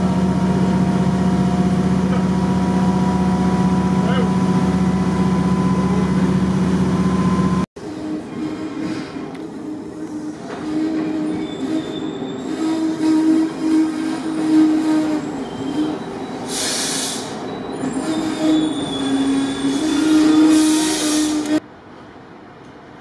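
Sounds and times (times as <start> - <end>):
diesel railcar droning past: 0.0 - 23.0
short bursts of hiss: 16.5 - 17.4.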